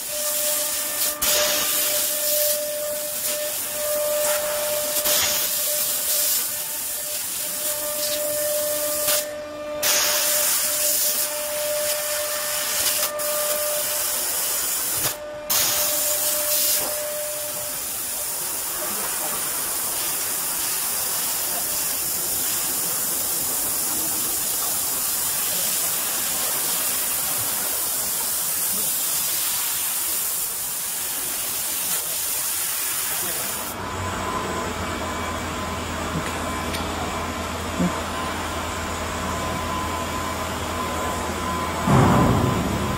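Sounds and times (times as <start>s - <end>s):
steady machine whine: 0.0s - 28.8s, 33.2s - 42.9s
assist gas hissing: 0.0s - 33.8s
low machine hum: 33.8s - 42.9s.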